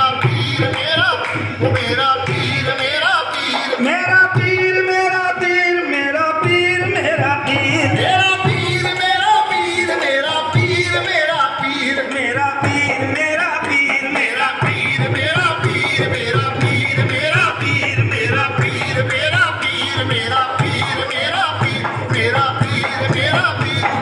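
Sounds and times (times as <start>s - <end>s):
harmonium: 0.0s - 24.0s
men singing devotional song: 0.0s - 24.0s
hand drum beat: 6.4s - 24.0s.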